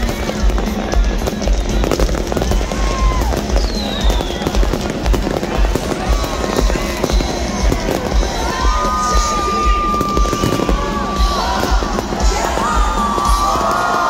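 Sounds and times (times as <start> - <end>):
fireworks crackling bangs: 0.0 - 14.0
low fireworks booms: 0.0 - 14.0
whistling shells: 2.9 - 11.7.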